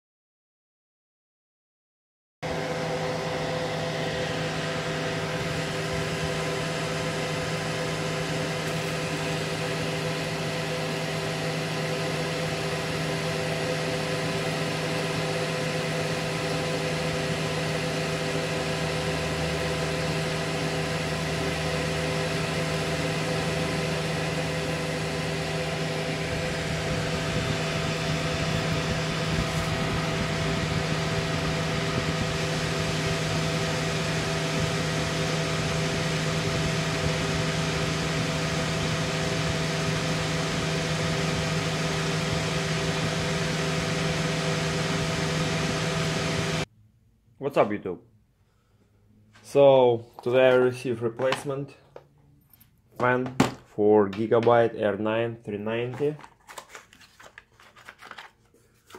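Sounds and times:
computer fans whirring: 2.4s - 46.7s.

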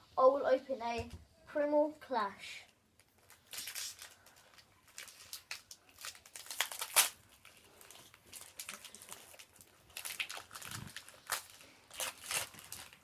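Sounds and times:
foil wrapper tearing and crinkling: 3.0s - 13.0s.

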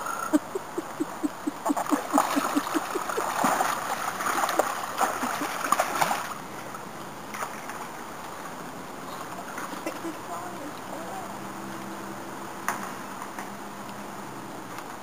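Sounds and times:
otters making short low calls: 0.0s - 5.6s
otters splashing in water: 0.6s - 8.0s.

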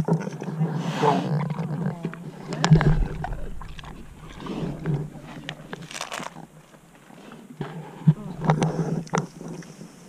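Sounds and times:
low bump: 2.6s - 6.9s
pig grunting and snuffling: 7.1s - 9.9s.

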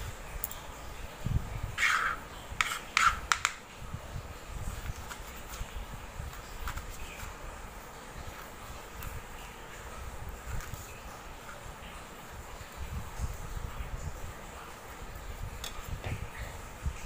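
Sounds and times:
knife cutting and scraping gourd: 1.8s - 3.6s, 4.9s - 5.6s.

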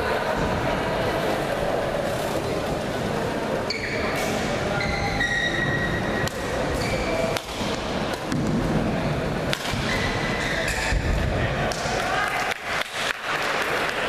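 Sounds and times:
crowd chatter in hall: 0.0s - 14.0s
shoes squeaking on court: 3.7s - 7.4s, 9.8s - 11.0s
rackets striking shuttlecock: 9.5s - 10.0s.

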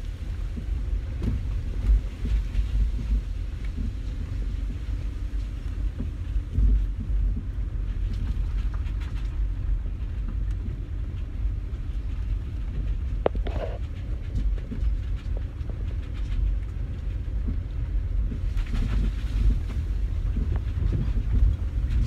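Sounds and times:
car interior road rumble: 0.0s - 22.0s.

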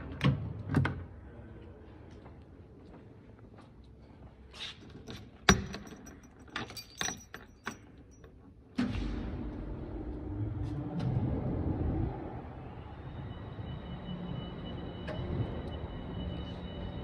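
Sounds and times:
keys jangling: 5.1s - 8.3s
fans rumbling and humming: 8.8s - 17.0s.

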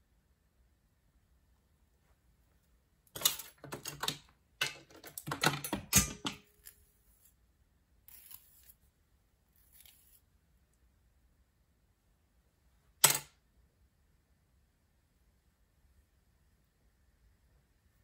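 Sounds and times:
handling clicks and scraping: 3.1s - 7.3s.

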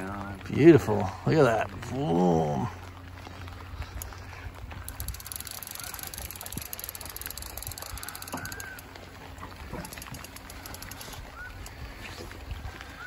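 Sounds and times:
rain hissing on water: 0.0s - 13.0s
rapid fine ticking: 3.9s - 11.8s.

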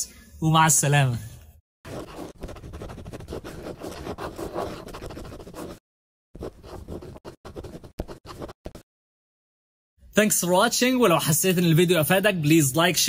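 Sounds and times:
pen scratching on paper: 1.9s - 5.8s, 6.4s - 8.9s.

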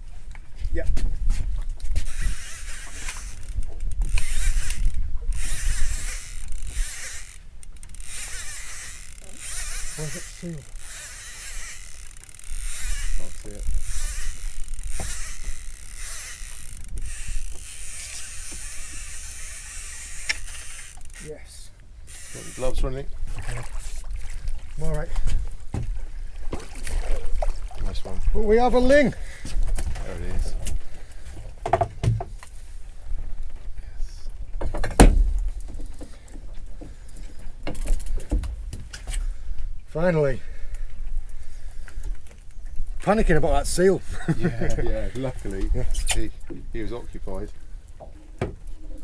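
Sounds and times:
fishing reel whirring and clicking: 2.0s - 21.4s, 22.0s - 23.0s
loud thump on a boat: 34.6s - 35.5s.

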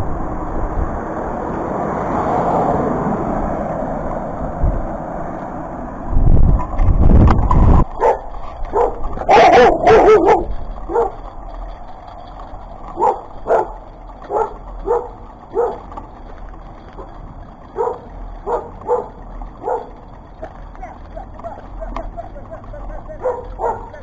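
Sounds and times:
wind buffeting microphone: 0.0s - 24.0s
dog barking: 8.0s - 11.3s, 13.0s - 15.9s, 17.7s - 20.0s, 23.2s - 24.0s.

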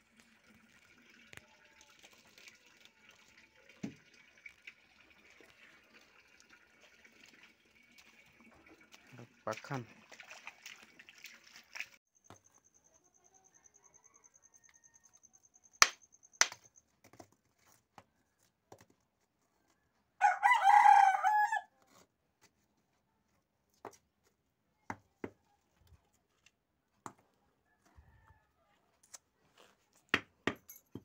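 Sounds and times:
rooster crowing: 13.3s - 15.3s, 20.2s - 21.7s
stones knocking together: 15.8s - 17.4s.

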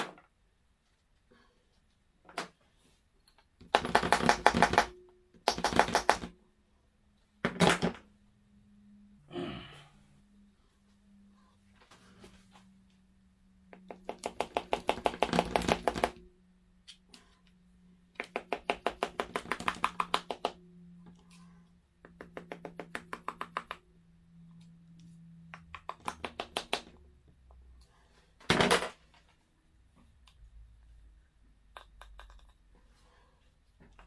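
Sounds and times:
hand tool rapid clicks: 3.7s - 6.3s.

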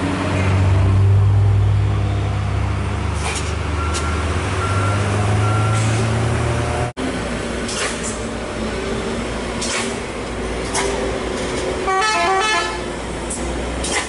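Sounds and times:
diesel trucks droning: 0.0s - 14.0s
vehicle horn: 11.8s - 12.8s.

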